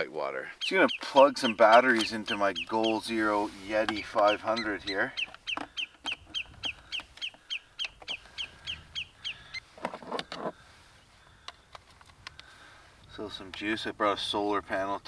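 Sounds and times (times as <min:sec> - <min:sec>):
low rough bird call: 0:00.5 - 0:11.8.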